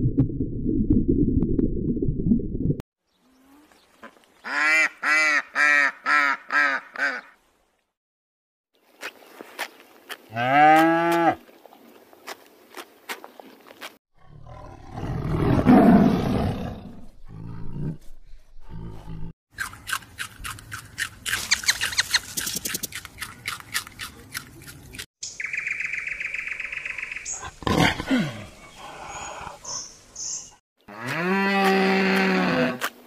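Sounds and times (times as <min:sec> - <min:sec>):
tiger growling and roaring: 0:14.2 - 0:19.3
high chirping: 0:21.4 - 0:23.4, 0:25.2 - 0:27.5
rapid clicks and chirps: 0:21.4 - 0:25.6.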